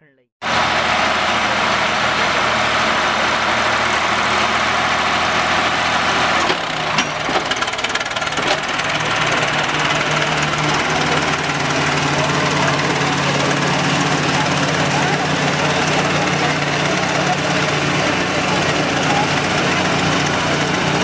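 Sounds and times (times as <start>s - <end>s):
diesel tractors running under load: 0.4s - 21.0s
sharp engine knocks: 5.6s - 12.3s.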